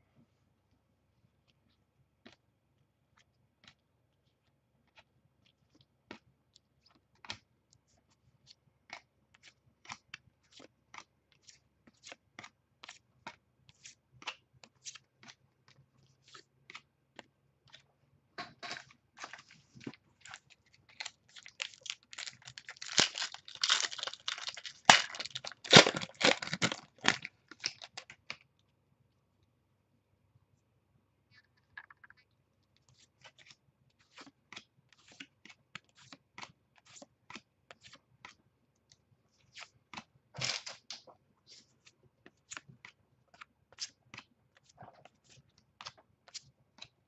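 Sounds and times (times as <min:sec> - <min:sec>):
wrapper crinkling and tearing: 0:20.2 - 0:28.1.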